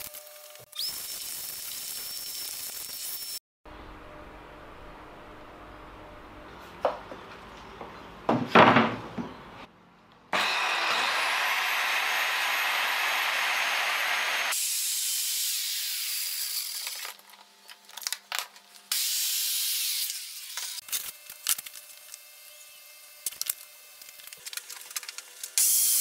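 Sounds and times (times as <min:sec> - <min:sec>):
wood knocking: 0:08.3 - 0:09.4
circular saw cutting wood: 0:10.4 - 0:17.0.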